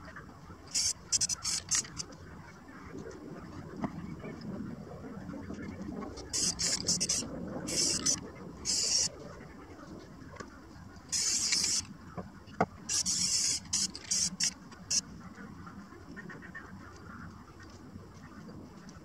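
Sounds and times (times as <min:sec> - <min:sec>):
spray can hissing: 0:00.7 - 0:02.0, 0:06.3 - 0:09.1, 0:11.1 - 0:11.9, 0:12.9 - 0:14.6.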